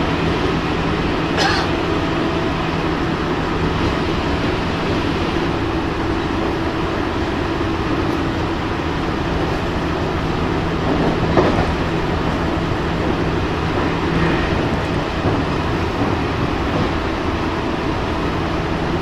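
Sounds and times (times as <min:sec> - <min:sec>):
steady train motor hum: 0:00.0 - 0:19.0
train wheels rumbling on rail: 0:00.0 - 0:19.0
train wheels clattering: 0:10.6 - 0:17.5.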